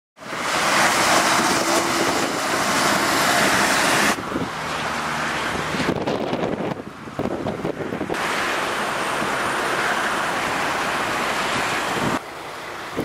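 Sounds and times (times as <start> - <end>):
wind on microphone: 0.2 - 4.6, 5.3 - 8.4, 11.2 - 12.2
lorry tyre and engine noise: 0.2 - 13.0.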